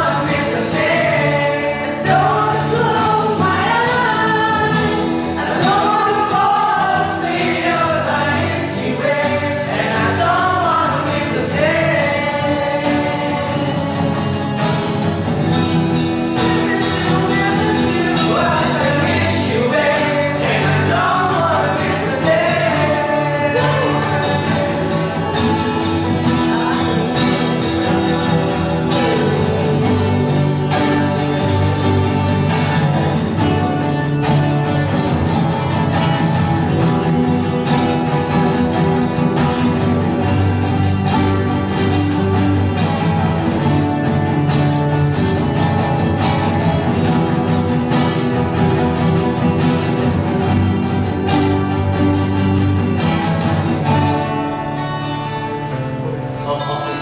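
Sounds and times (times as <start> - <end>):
group of men singing: 0.0 - 33.6
acoustic guitars: 0.0 - 57.0.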